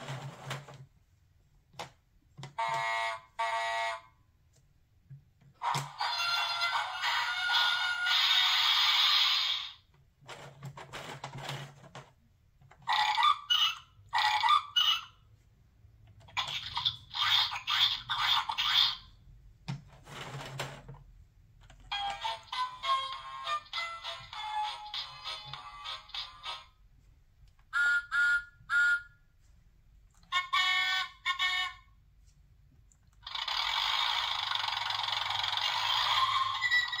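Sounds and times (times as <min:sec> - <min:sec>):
plastic gear wheels clicking: 0:33.2 - 0:37.0.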